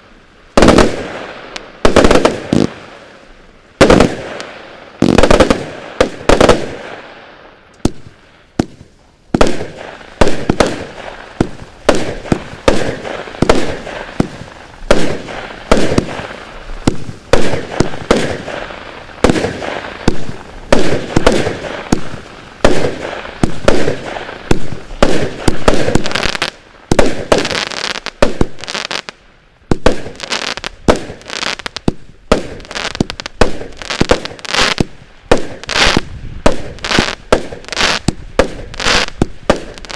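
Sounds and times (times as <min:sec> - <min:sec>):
firework cake firing bangs: 0:00.6 - 0:01.2, 0:03.8 - 0:06.9, 0:07.8 - 0:29.0, 0:29.7 - 0:39.9.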